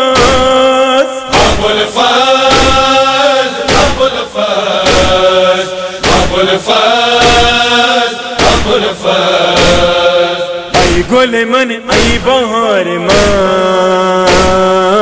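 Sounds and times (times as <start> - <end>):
chest-beating thumps: 0.2 - 0.6, 1.3 - 12.5, 13.1 - 13.6, 14.3 - 14.8
male chanting in long notes: 8.6 - 15.0.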